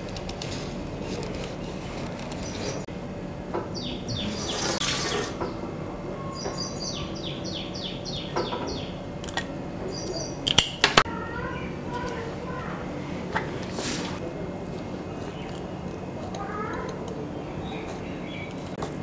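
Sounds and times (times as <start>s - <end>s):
bird chirping: 3.7s - 9.0s, 9.8s - 10.6s, 16.5s - 18.7s
ice cream scoop scraping: 13.6s - 19.0s.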